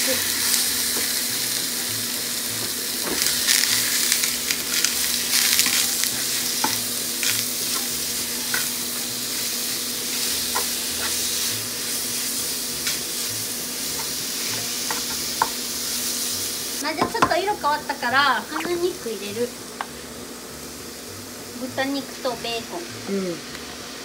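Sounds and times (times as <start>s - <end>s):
beef sizzling in oil: 0.0s - 24.0s.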